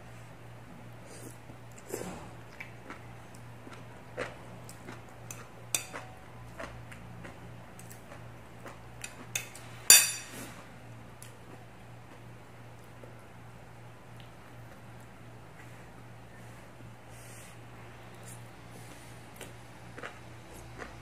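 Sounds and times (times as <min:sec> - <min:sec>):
steady low hum: 0:00.0 - 0:21.0
chopsticks clinking on ceramic plates: 0:05.3 - 0:06.1, 0:09.0 - 0:10.3.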